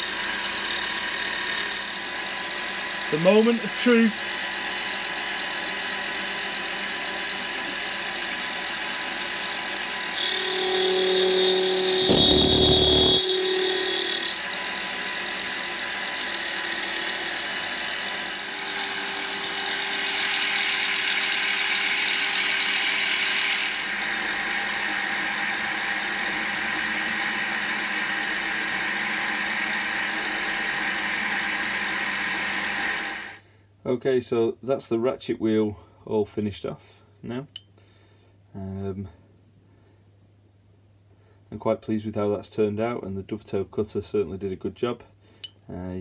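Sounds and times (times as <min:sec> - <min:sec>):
cutter ringing on brass: 0:00.0 - 0:02.2, 0:10.2 - 0:14.5, 0:16.2 - 0:17.7
milling machine running: 0:00.0 - 0:23.7
drill boring into brass: 0:00.0 - 0:24.0.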